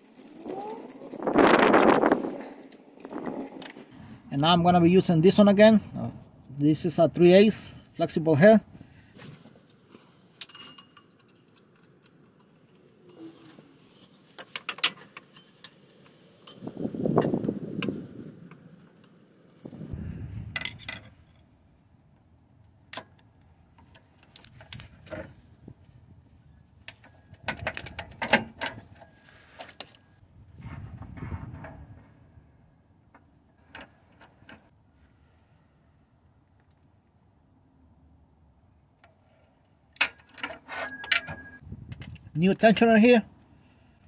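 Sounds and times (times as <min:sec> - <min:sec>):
metal tools clinking: 0:00.0 - 0:03.9, 0:10.4 - 0:13.8, 0:27.0 - 0:30.0, 0:40.0 - 0:41.6.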